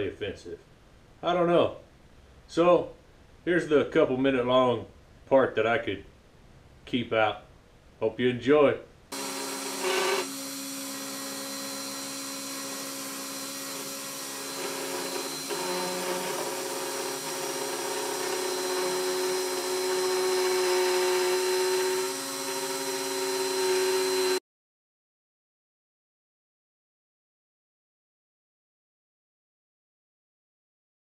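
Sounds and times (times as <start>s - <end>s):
bit cutting wood: 9.1s - 24.4s
router spindle whine: 9.1s - 24.4s.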